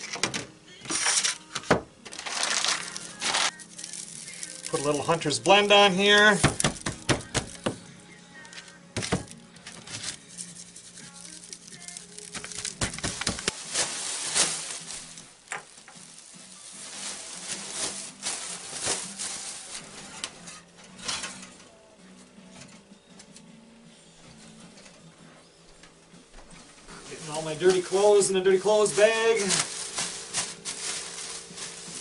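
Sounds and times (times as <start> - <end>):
plastic bag rustling: 0.9 - 7.6, 8.4 - 21.5, 26.7 - 32.0.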